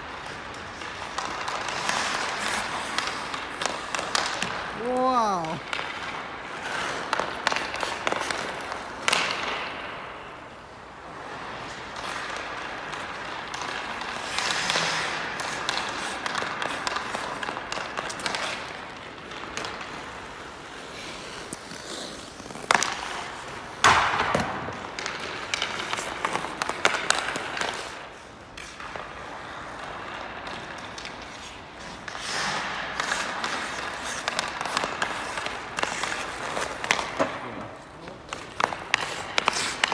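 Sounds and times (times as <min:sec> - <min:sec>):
hockey stick clacking on pucks: 0:00.0 - 0:39.9
skates scraping on ice: 0:00.0 - 0:39.9
puck shot cracks: 0:23.8 - 0:28.0.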